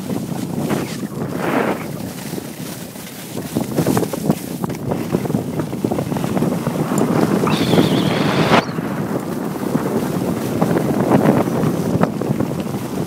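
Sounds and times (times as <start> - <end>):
wind buffeting microphone: 0.0 - 13.0
skis scraping on packed snow: 0.1 - 4.6.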